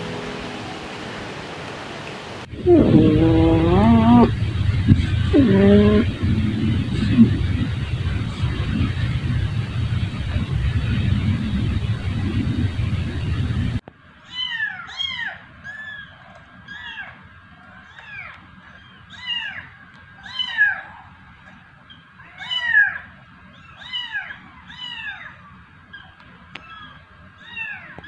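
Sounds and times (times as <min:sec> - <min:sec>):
steady noise: 0:00.0 - 0:13.9
kittens meowing: 0:02.6 - 0:13.1, 0:19.1 - 0:20.9, 0:22.2 - 0:28.0.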